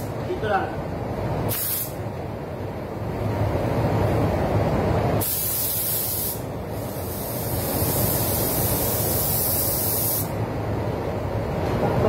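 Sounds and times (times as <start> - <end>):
steady low rumble: 0.0 - 5.2
spray gun air hissing: 1.5 - 2.0, 5.2 - 10.4.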